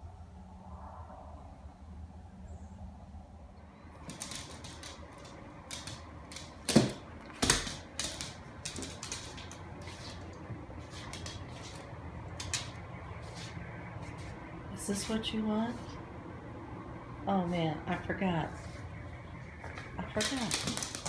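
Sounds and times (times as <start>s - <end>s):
dog claws clicking on hardwood floor: 4.0s - 12.8s, 19.7s - 21.0s.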